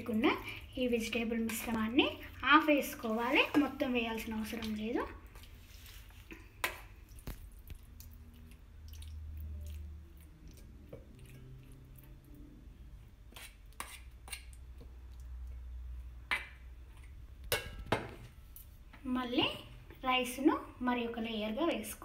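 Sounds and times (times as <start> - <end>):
food squishing: 3.0 - 17.9
metal spoon scraping steel bowl: 13.3 - 14.6.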